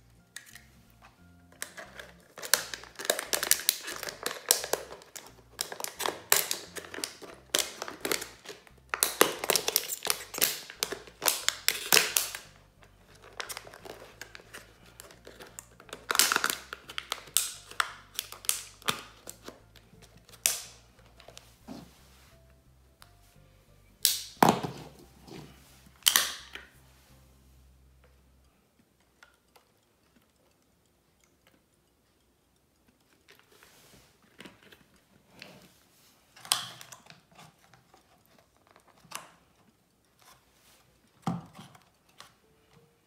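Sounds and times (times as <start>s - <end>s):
quiet background music: 0.0s - 43.0s
plastic bottle crinkling: 1.5s - 21.9s.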